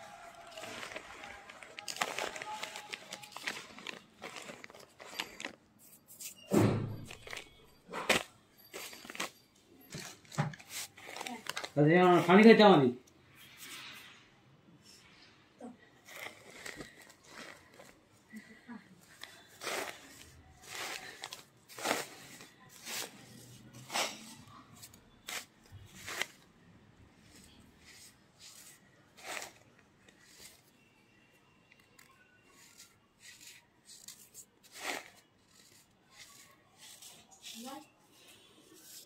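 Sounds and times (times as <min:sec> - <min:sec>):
powder crunching in plastic bag: 0:00.0 - 0:05.6, 0:16.0 - 0:18.6, 0:19.2 - 0:26.5, 0:32.0 - 0:37.5.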